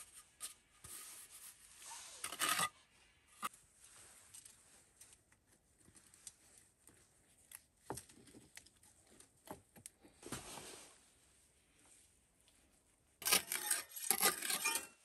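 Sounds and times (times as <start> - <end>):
stone scraping in wet mortar: 13.2 - 15.0.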